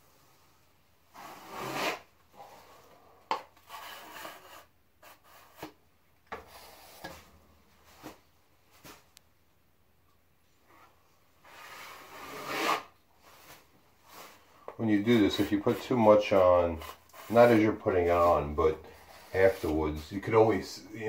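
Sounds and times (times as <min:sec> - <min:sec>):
drywall knife scraping compound: 0:01.1 - 0:07.3, 0:11.4 - 0:20.1.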